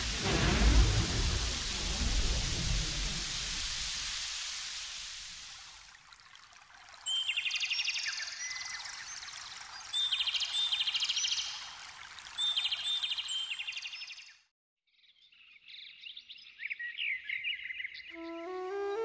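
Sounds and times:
running water rushing: 0.0s - 14.1s.

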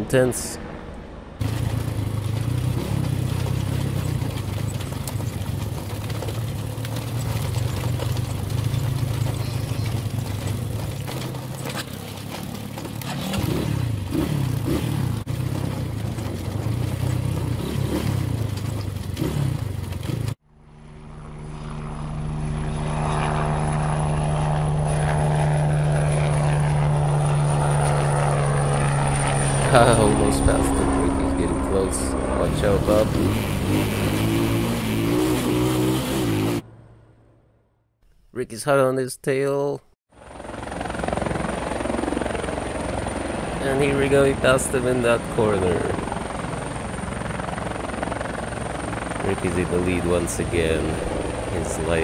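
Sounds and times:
drone propellers whining: 0.6s - 37.5s, 40.4s - 52.0s
motorbike engines revving: 1.4s - 20.4s, 22.6s - 36.7s, 43.4s - 47.3s, 49.0s - 52.0s.

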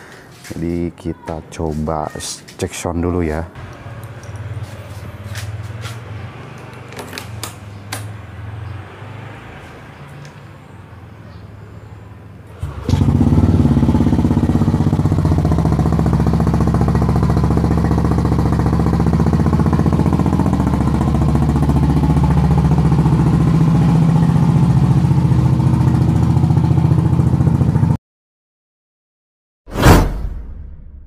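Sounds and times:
scooter engine idling: 12.6s - 28.0s.

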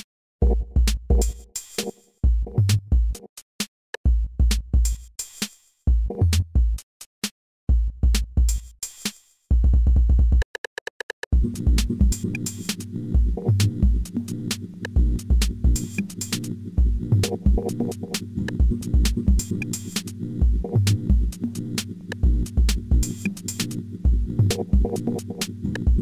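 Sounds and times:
kick drums: 0.0s - 1.5s, 2.2s - 3.2s, 4.1s - 5.1s, 7.7s - 8.7s, 9.5s - 10.4s, 11.4s - 12.2s, 14.9s - 15.9s, 16.8s - 17.7s, 18.5s - 19.5s, 20.4s - 21.4s, 22.2s - 23.2s, 24.1s - 25.0s
sustained synth notes: 11.4s - 26.0s
hi-hat clicks: 11.5s - 26.0s.

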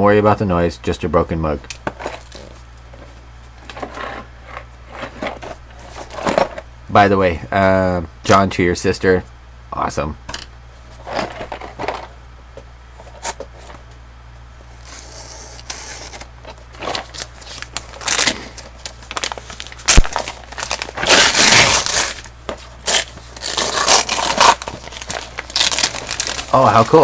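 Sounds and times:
wrapping paper tearing: 14.8s - 27.0s.

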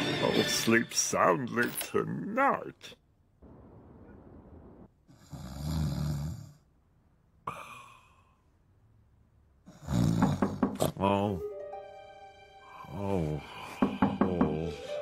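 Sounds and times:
cartoon snoring: 5.1s - 6.7s, 9.7s - 10.6s.

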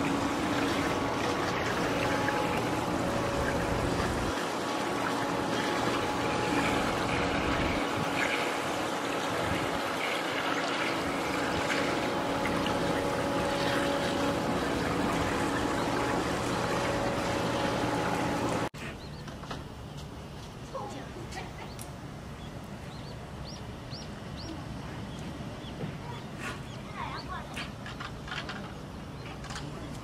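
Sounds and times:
water running and trickling: 0.0s - 18.7s
faint mechanical hum: 0.0s - 30.0s.

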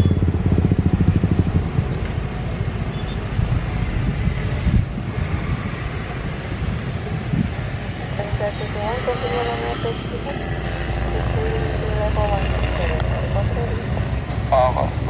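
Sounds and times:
small motorcycle engine running: 0.0s - 3.1s, 9.1s - 14.2s
road and wind noise: 0.0s - 15.0s.

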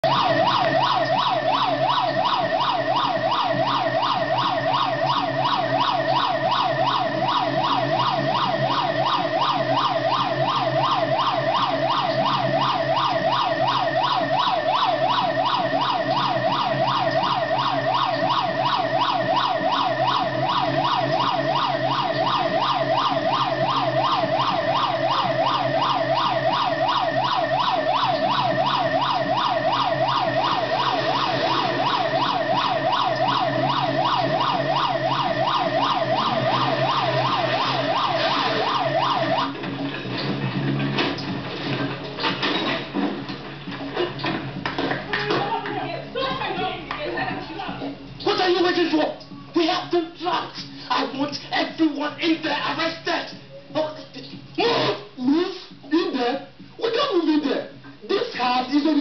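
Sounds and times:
police siren yelping: 0.0s - 44.4s.

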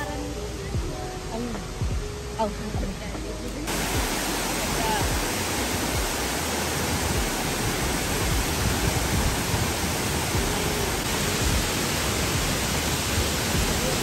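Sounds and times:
waterfall rushing: 3.7s - 14.0s.

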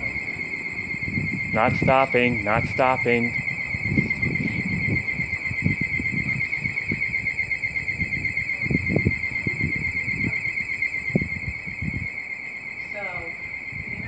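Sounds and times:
low rumbling gusts: 0.0s - 14.0s
rails singing with warbling whine: 0.0s - 14.0s.

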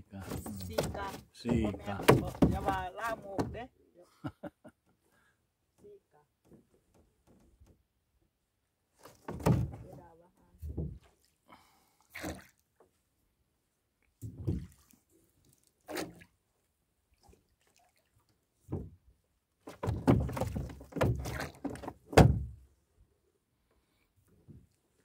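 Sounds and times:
hollow knocks on boat hull: 0.7s - 3.6s.

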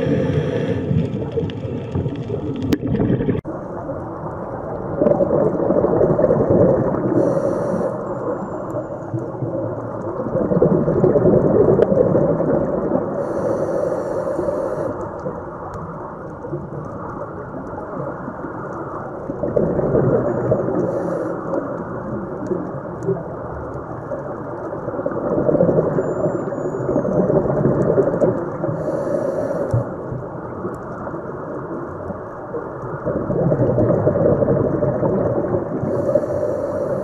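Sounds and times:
underwater rushing and rumbling: 0.0s - 37.0s
short hissing bursts: 7.1s - 8.0s, 13.2s - 15.0s.

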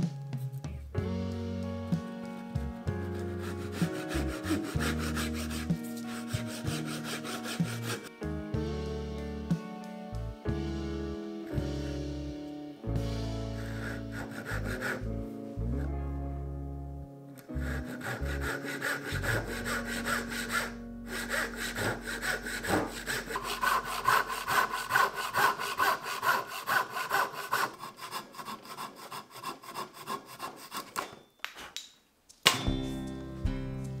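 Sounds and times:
hand saw cutting plywood: 3.0s - 8.2s, 13.4s - 15.2s, 17.4s - 31.2s.

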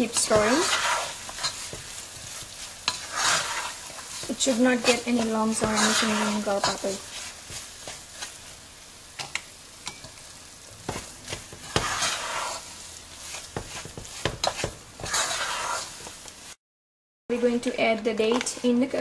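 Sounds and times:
spoon scraping pot: 0.0s - 8.4s, 10.9s - 12.6s, 13.2s - 16.0s.

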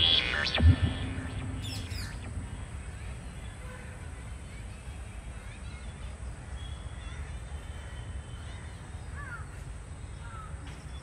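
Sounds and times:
steady low rumble: 0.0s - 3.6s
faint bird chirps: 0.0s - 11.0s.

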